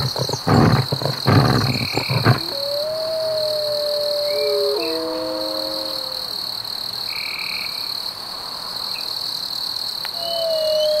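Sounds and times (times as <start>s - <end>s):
night creatures calling: 0.0s - 6.5s
wolves howling: 0.1s - 6.6s.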